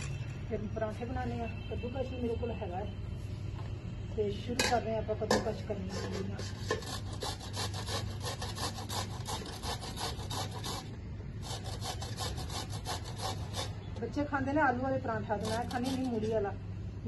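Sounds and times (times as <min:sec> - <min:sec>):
radish grated on metal grater: 0:05.8 - 0:13.8, 0:15.4 - 0:16.3.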